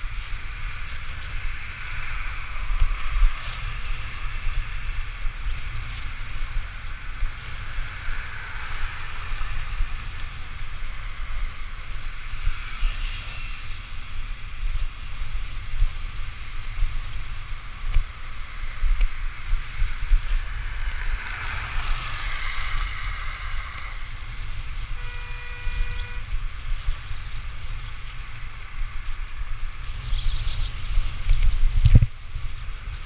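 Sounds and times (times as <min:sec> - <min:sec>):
wind buffeting microphone: 0:00.0 - 0:33.0
road hiss: 0:05.7 - 0:31.3
horn tone: 0:25.0 - 0:26.4.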